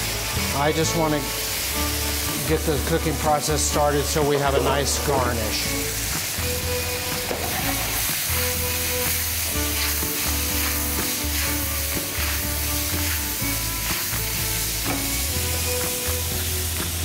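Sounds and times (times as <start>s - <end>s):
vegetables sizzling in a pan: 0.0s - 17.0s
vegetables shaken in a pan: 9.7s - 13.3s.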